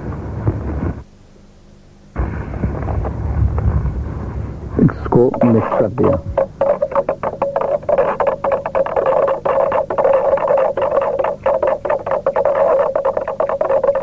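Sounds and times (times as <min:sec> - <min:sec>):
stick knocking on plastic container: 0:05.4 - 0:14.0.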